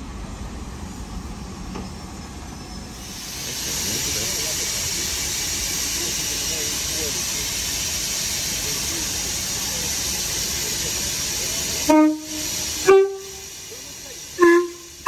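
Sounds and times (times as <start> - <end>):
steam hissing: 2.8 - 15.0
train horn toots: 11.8 - 13.5, 14.4 - 15.0.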